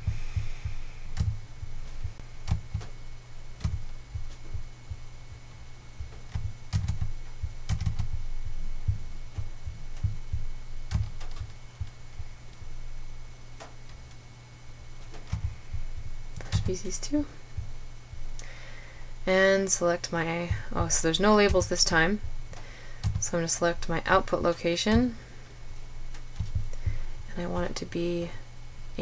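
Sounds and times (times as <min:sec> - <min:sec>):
low electrical hum: 0:00.0 - 0:29.0
computer mouse clicks: 0:10.9 - 0:11.9.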